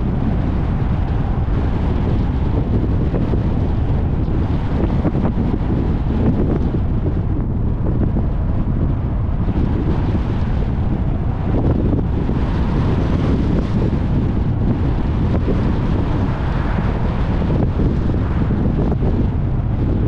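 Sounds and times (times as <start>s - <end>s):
road noise: 0.0s - 20.0s
wind buffeting microphone: 0.0s - 20.0s.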